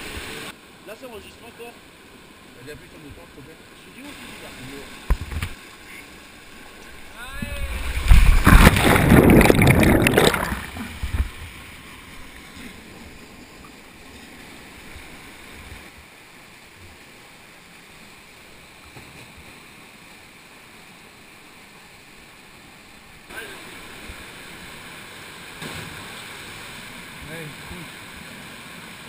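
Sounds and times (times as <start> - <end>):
rushing water: 0.0 - 29.0
small waterfall pouring: 3.9 - 11.4
heavy splash into pool: 7.6 - 11.0.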